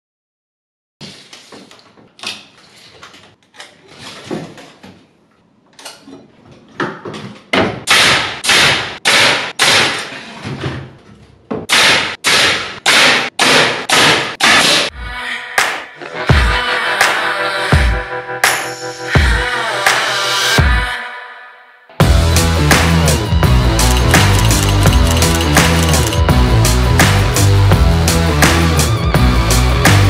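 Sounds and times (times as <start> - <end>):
nail gun firing: 7.9 - 10.2, 11.7 - 14.9.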